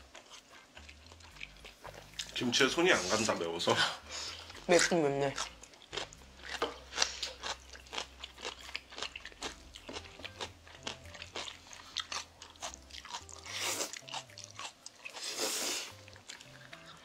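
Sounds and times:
wet chewing and smacking: 0.0s - 3.3s, 4.4s - 17.0s
slurping noodles: 13.5s - 14.0s, 15.2s - 16.0s.

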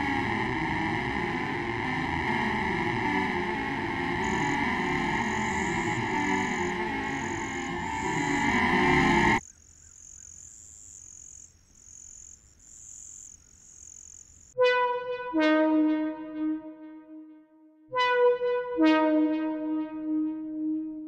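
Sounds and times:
faint high pulsing tone: 0.0s - 9.4s, 14.6s - 21.0s
loud dense film music: 0.0s - 9.4s
sustained brass horn notes: 0.0s - 9.4s, 14.6s - 21.0s.

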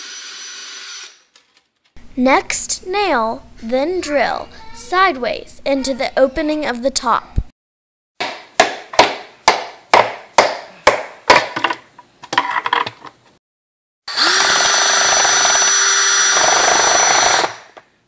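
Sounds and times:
electric drill running: 0.0s - 1.2s, 14.1s - 17.8s
hammer striking nail: 8.2s - 11.7s.

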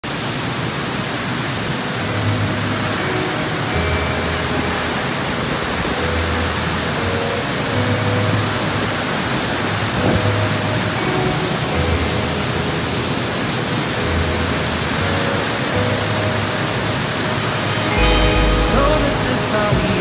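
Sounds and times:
heavy rain on paving and roofs: 0.0s - 20.0s
faint low tones: 16.4s - 20.0s.

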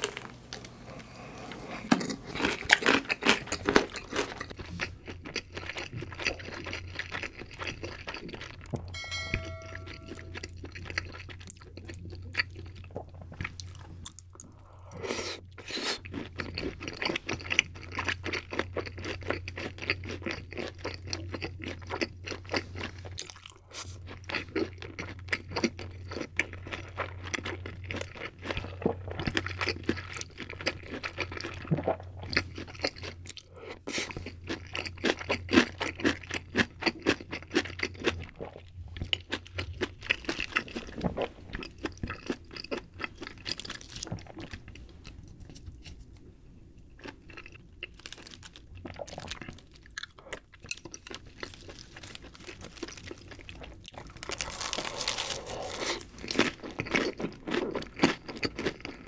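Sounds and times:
low steady hum: 0.0s - 15.6s
person chewing and crunching food: 0.0s - 59.0s.

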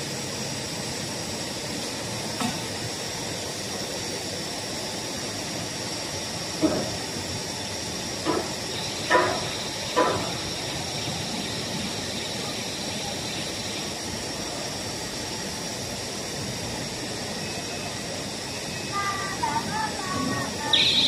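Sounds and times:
machine running with high hiss: 0.0s - 21.0s.

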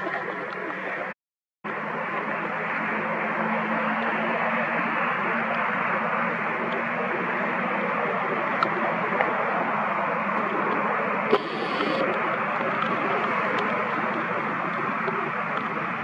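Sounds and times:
steady background hiss: 4.8s - 16.0s.

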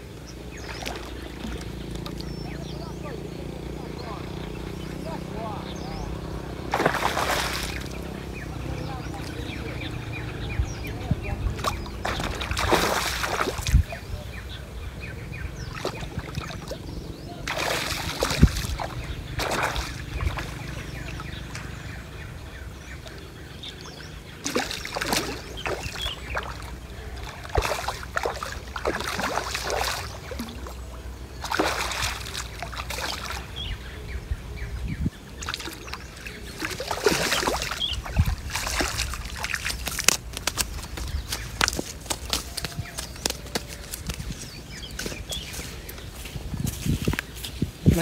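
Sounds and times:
water splashing and sloshing: 0.0s - 14.0s, 15.6s - 34.1s, 35.1s - 48.0s
steady low rumble: 0.0s - 24.4s.

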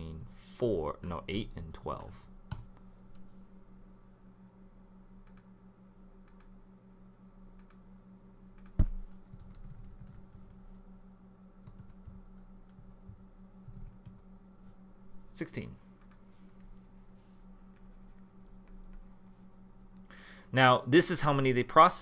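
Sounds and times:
computer keyboard typing: 8.6s - 10.8s, 11.6s - 14.3s.

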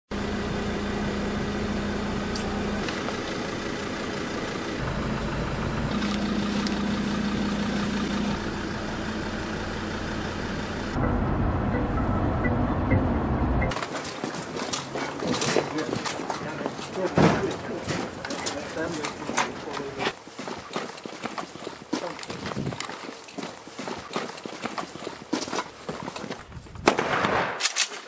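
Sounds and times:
car engine and road noise: 0.1s - 26.9s.

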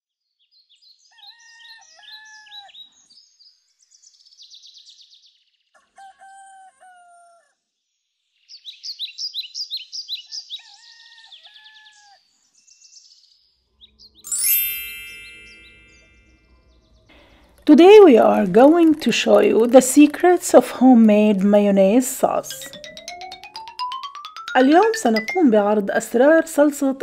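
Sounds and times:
songbirds chirping and trilling: 0.2s - 14.4s, 15.1s - 22.5s
rooster crowing: 5.8s - 7.5s, 10.6s - 12.2s.

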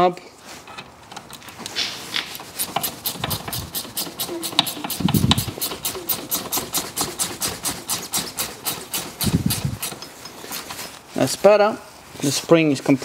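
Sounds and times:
ratchet spanner clicking: 2.3s - 10.7s.

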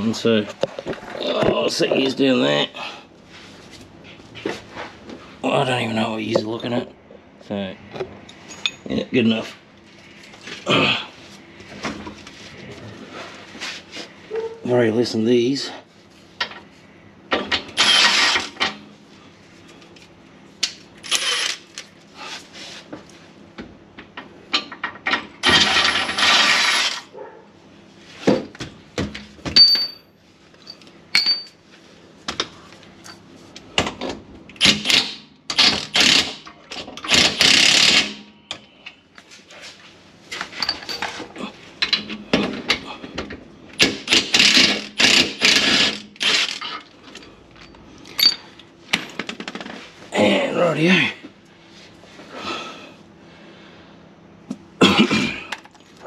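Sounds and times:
impact driver rattling: 25.4s - 27.0s.

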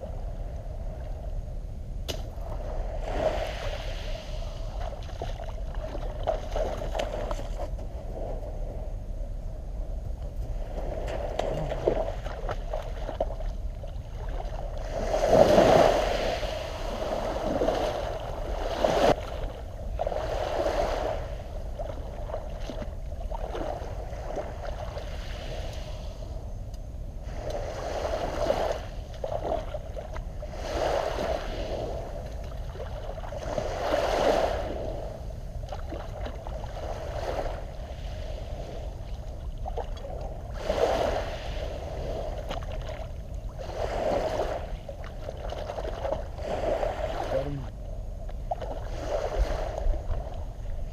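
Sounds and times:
seawater splashing at shore: 2.1s - 7.8s, 27.3s - 47.7s.

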